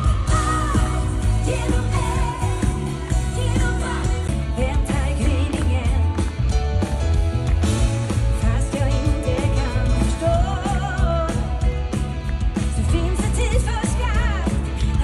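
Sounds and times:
live pop-rock band: 0.0 - 15.0.

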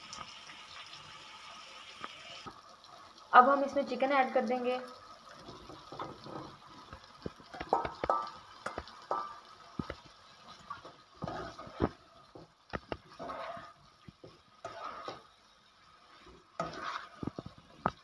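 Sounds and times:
faint sizzle: 0.0 - 18.0
spatula knocking and scraping pan: 5.6 - 10.0, 10.8 - 15.3, 16.2 - 18.0.

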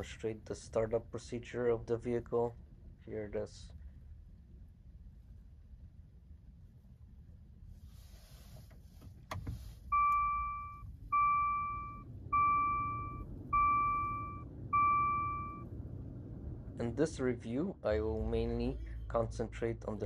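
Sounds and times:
dashboard warning chime: 9.9 - 15.7.

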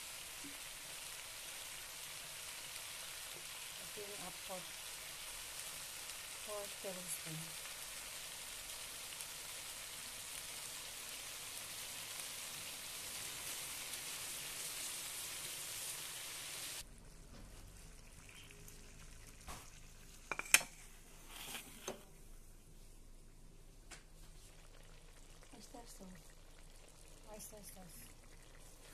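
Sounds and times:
sauce sizzling in a wok: 0.0 - 16.9, 24.4 - 28.9.

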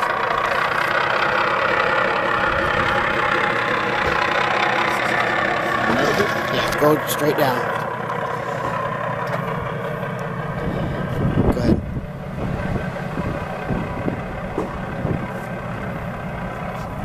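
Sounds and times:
model tractor motor drone: 0.0 - 17.0
louder bumps: 14.5 - 15.2.

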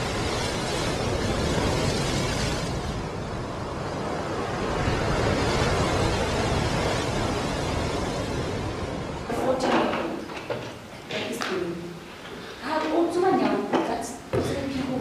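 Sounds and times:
waves breaking on rocks: 0.0 - 10.8.

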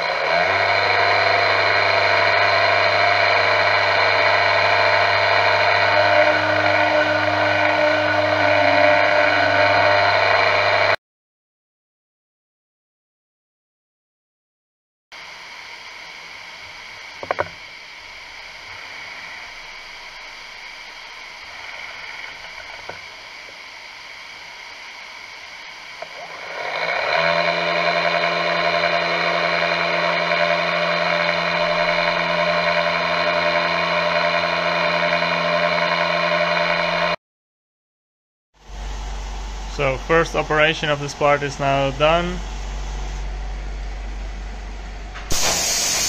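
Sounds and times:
milling machine spindle whine: 0.0 - 11.0, 15.2 - 37.2, 38.6 - 46.0
steady hiss: 45.3 - 46.0.

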